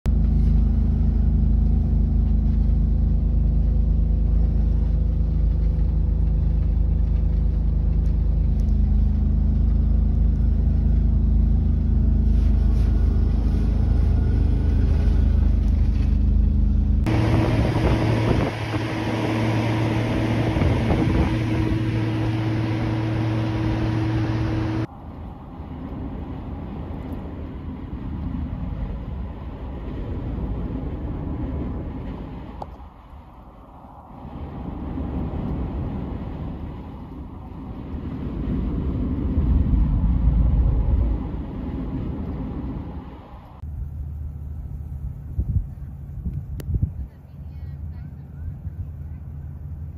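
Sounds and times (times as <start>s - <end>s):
road noise: 0.1s - 49.9s
steady hums: 0.1s - 49.9s
truck engine drone: 0.1s - 49.9s.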